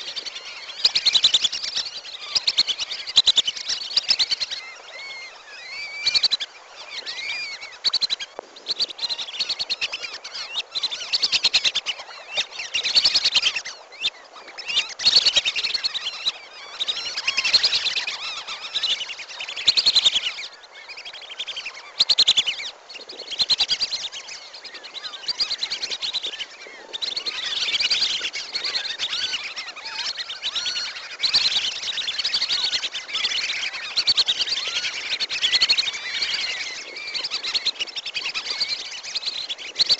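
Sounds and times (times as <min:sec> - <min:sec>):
ducks whistling and twittering: 0:00.0 - 0:39.9.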